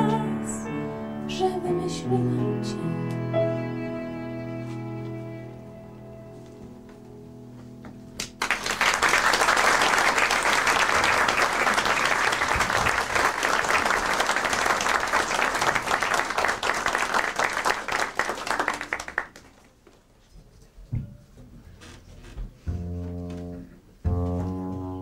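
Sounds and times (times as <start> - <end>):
audience applauding: 8.2 - 19.7.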